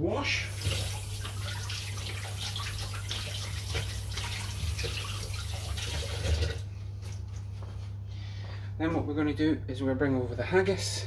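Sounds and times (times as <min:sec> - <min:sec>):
tap running over washing hands: 0:00.5 - 0:06.6.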